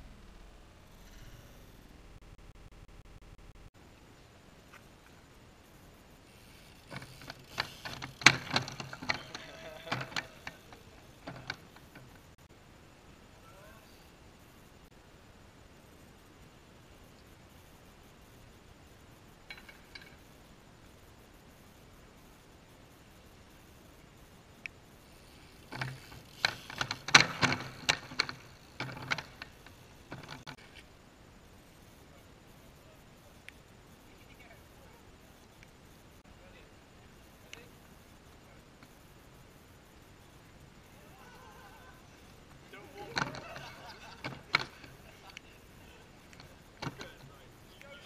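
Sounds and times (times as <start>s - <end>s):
bike tyres knocking on wood: 6.9s - 10.6s, 25.7s - 29.5s
wooden plank clattering: 43.0s - 44.9s.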